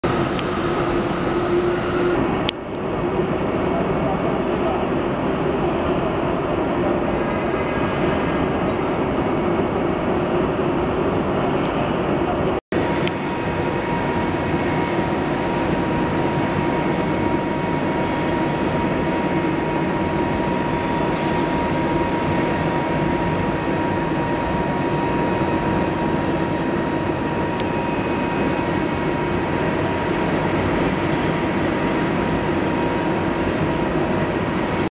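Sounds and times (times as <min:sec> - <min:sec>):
thin high whine: 0:00.0 - 0:02.2, 0:12.8 - 0:34.9
lathe cutting steel: 0:13.4 - 0:28.7, 0:30.4 - 0:34.9.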